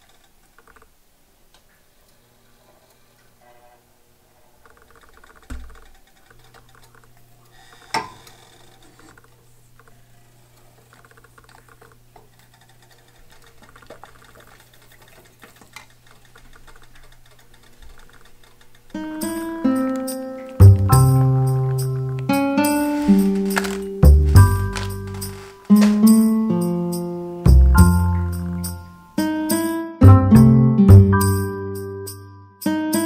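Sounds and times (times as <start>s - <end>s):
music: 19.0s - 33.0s.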